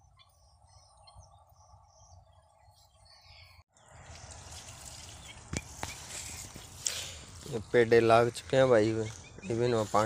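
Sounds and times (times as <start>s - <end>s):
birds chirping: 0.0s - 10.0s
water poured onto soil: 4.0s - 7.6s.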